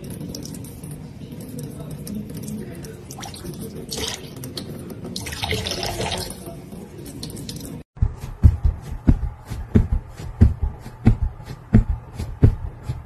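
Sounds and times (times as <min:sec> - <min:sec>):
soft low thumps: 0:08.0 - 0:13.0.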